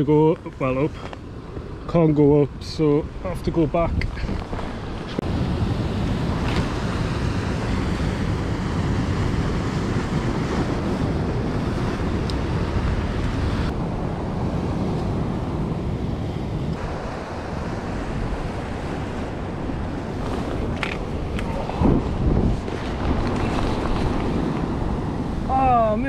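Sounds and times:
wind rumbling on microphone: 0.0 - 26.0
surf washing on rocks: 0.1 - 26.0.

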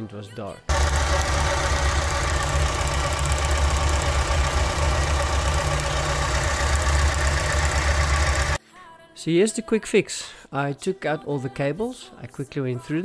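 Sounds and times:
car engine idling: 0.7 - 8.6.

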